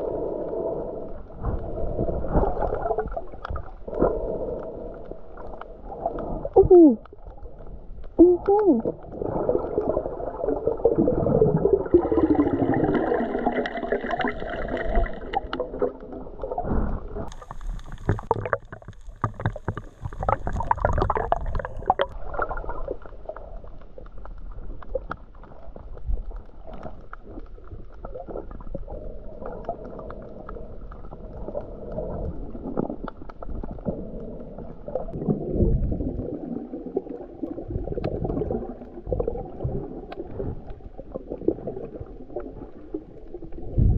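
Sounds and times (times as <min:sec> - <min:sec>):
underwater gurgling and bubbling: 0:00.0 - 0:43.9
clicks and crackles: 0:01.5 - 0:10.0, 0:12.9 - 0:35.3.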